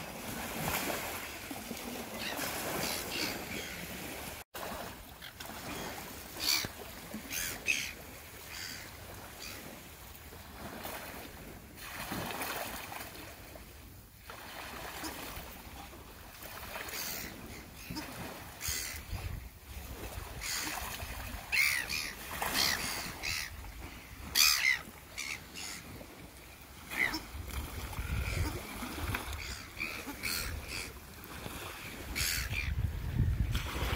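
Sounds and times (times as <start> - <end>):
soft water wash: 0.0 - 33.9
gulls squawking: 6.4 - 9.6, 21.5 - 23.6, 24.2 - 26.0, 26.8 - 27.3, 28.0 - 31.0, 31.9 - 32.8.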